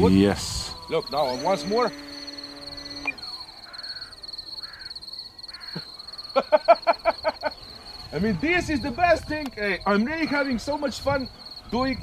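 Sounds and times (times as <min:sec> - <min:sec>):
high insect trilling: 0:00.0 - 0:12.0
model plane motor hum: 0:00.4 - 0:04.8
crow cawing: 0:01.1 - 0:06.4.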